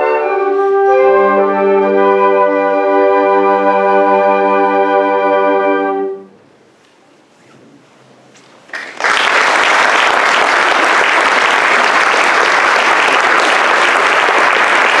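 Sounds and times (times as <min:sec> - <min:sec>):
audience applause: 0:08.7 - 0:15.0.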